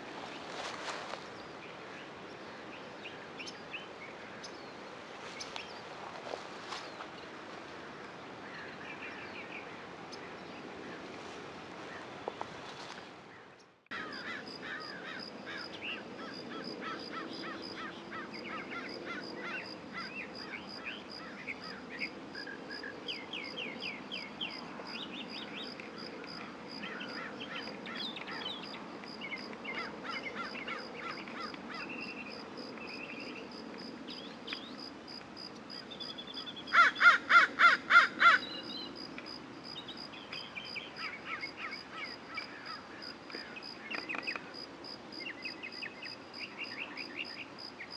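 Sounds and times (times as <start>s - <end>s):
small birds chirping: 11.9s - 34.8s, 38.3s - 44.6s.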